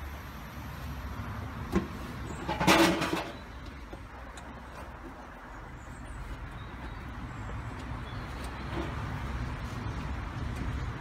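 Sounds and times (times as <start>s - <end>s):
clattering noise: 1.7s - 3.5s.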